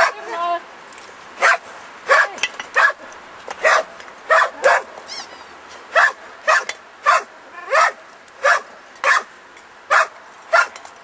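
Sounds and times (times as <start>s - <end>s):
dog barking: 0.0s - 0.4s, 1.4s - 3.0s, 3.6s - 4.9s, 5.9s - 9.3s, 9.9s - 10.8s.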